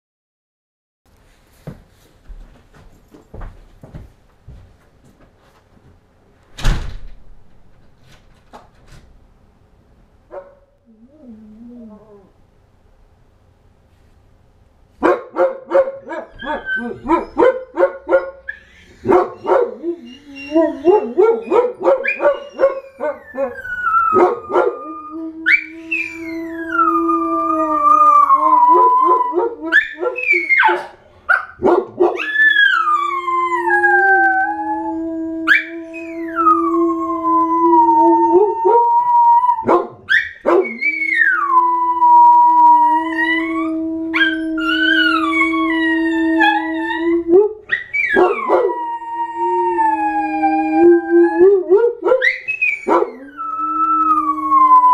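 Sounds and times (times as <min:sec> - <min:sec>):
dogs howling: 0:16.0 - 0:17.8, 0:18.5 - 0:31.0, 0:31.9 - 0:54.9.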